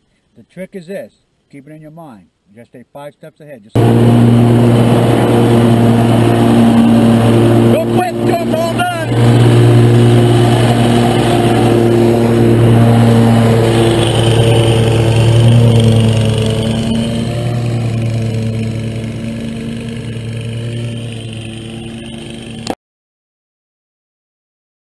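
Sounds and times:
riding mower engine running: 3.8 - 22.8.

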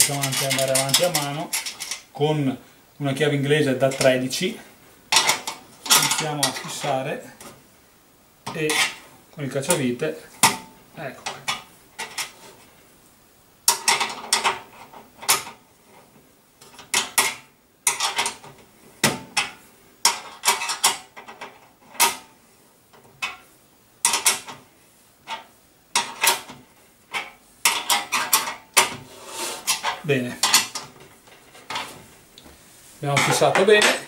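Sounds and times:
screwdriver scraping and clicking metal: 0.0 - 2.0.

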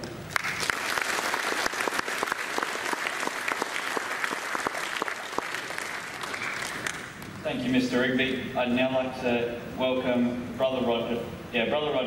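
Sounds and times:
audience applauding: 0.3 - 7.3.

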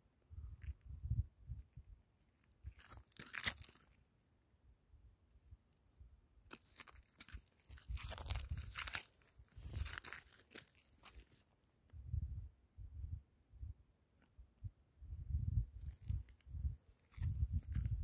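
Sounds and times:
gravel crunching: 2.2 - 4.0, 6.5 - 11.5, 17.0 - 18.0.

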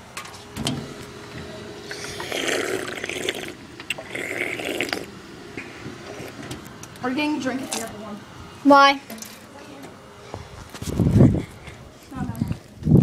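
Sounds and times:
drinking fountain water running: 1.0 - 9.2.

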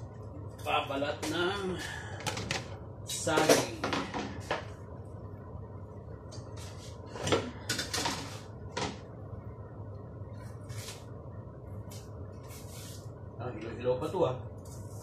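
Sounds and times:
rustling scrapes: 12.4 - 13.1.

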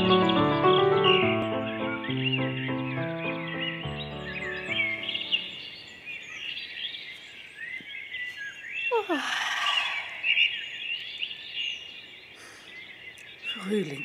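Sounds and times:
intro music chord: 0.0 - 5.5
songbirds chirping: 0.0 - 14.0.

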